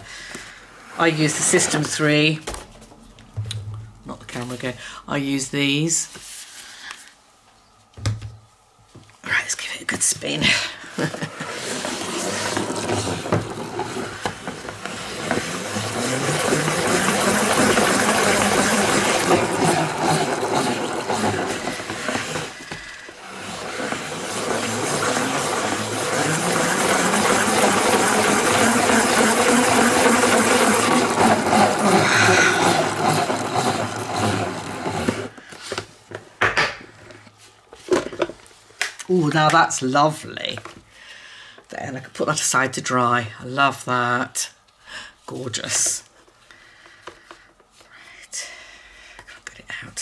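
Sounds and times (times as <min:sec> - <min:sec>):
salad spinner whirring: 0:11.0 - 0:35.4.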